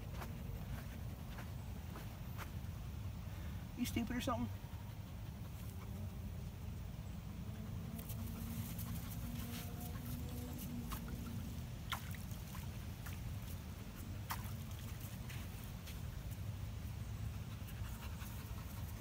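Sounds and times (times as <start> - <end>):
steady low rumble: 0.0 - 19.0
water splashing at shoreline: 10.8 - 15.7.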